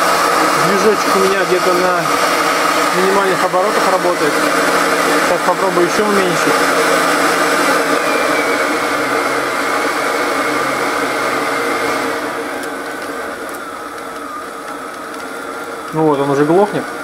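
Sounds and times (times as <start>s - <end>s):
air pump motor whirring: 0.0s - 17.0s.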